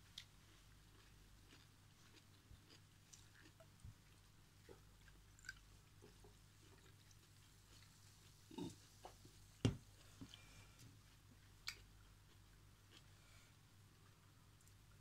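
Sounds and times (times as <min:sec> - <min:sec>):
person gulping: 0:08.5 - 0:08.8.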